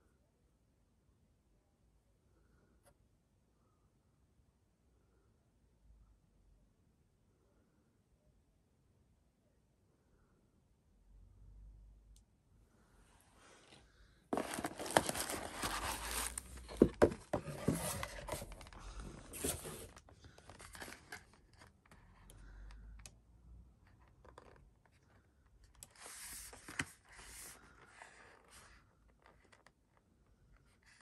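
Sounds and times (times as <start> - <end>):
cardboard rustling and scraping: 14.3 - 21.7.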